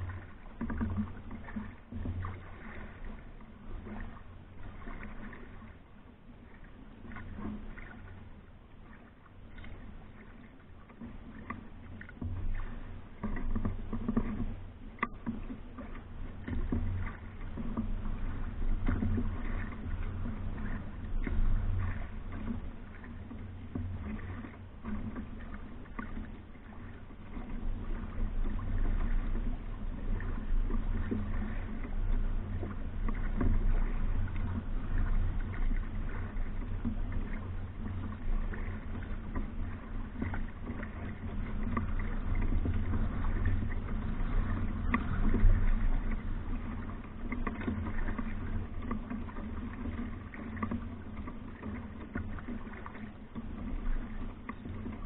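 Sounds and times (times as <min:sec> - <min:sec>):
canoe paddle strokes: 0:00.0 - 0:55.0
water washing along hull: 0:00.0 - 0:55.0
low rumble: 0:12.2 - 0:50.3.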